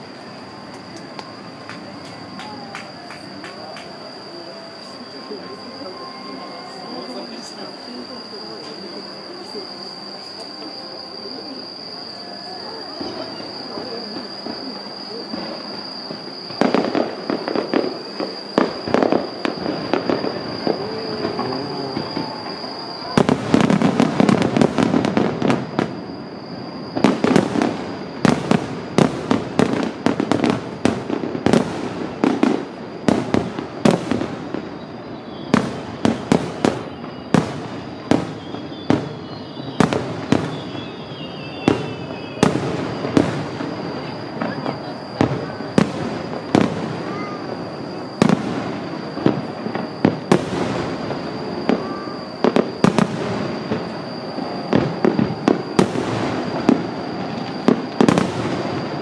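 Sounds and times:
firework shells bursting: 0:15.3 - 0:26.1.

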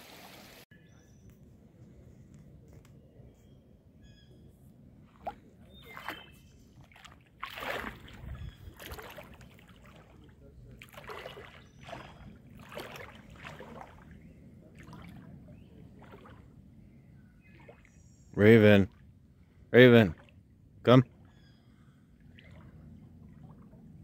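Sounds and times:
creek water trickling: 0:05.0 - 0:24.0.

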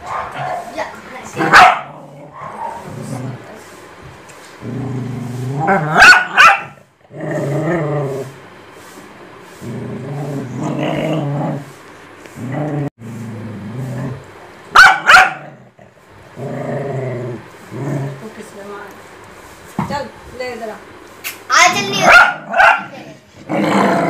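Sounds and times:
dogs growling: 0:00.2 - 0:03.6, 0:04.4 - 0:08.4, 0:09.6 - 0:11.8, 0:12.4 - 0:14.5, 0:15.2 - 0:18.4, 0:22.2 - 0:24.0
dog barking sharply: 0:01.4 - 0:02.8, 0:06.0 - 0:06.8, 0:14.8 - 0:15.4, 0:22.0 - 0:22.9.

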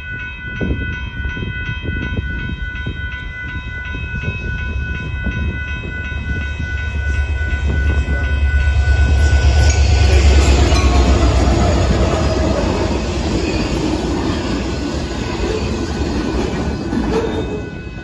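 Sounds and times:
railroad crossing bell ringing: 0:00.0 - 0:18.0
diesel locomotive rumble: 0:04.7 - 0:18.0.

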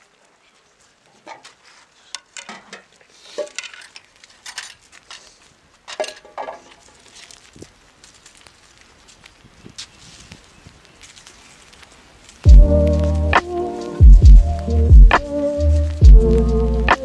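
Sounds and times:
metal cookware clattering: 0:02.2 - 0:04.8, 0:05.9 - 0:06.8.

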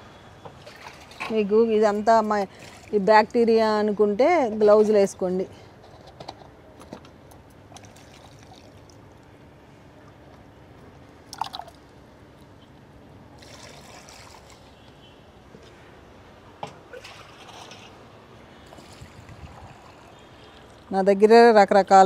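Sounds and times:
water sloshing and trickling: 0:00.4 - 0:03.6, 0:07.3 - 0:16.0, 0:16.8 - 0:21.1
water splashes: 0:00.6 - 0:01.4, 0:07.7 - 0:09.3, 0:13.4 - 0:14.9, 0:16.9 - 0:20.9.

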